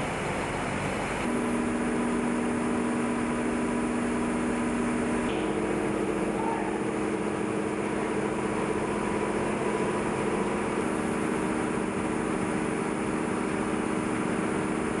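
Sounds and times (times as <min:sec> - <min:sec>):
spinning machinery hum: 0:00.0 - 0:15.0.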